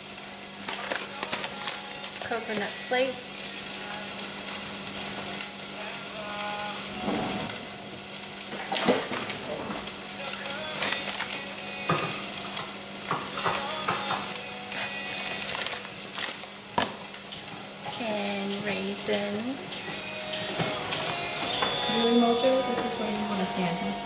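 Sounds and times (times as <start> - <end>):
steady hiss: 0.0 - 24.0
plastic bag crinkling: 0.5 - 4.1, 8.5 - 12.6, 13.2 - 23.6.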